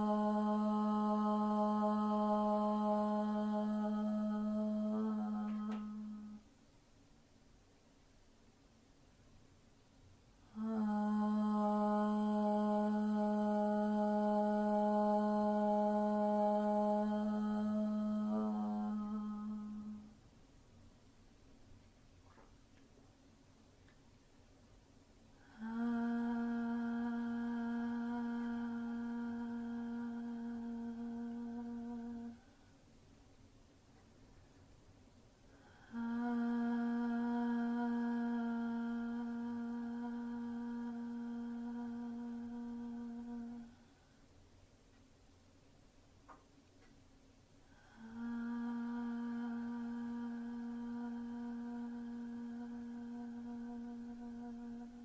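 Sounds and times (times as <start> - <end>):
woman holding a sung note: 0.0 - 6.5, 10.5 - 20.2, 25.4 - 32.6
woman singing held note: 10.5 - 20.2.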